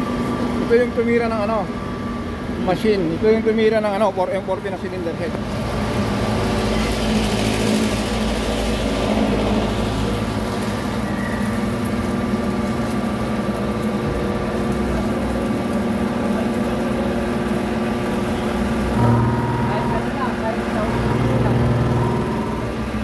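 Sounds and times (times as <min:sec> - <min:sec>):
grinding machine hum: 0:15.9 - 0:23.0.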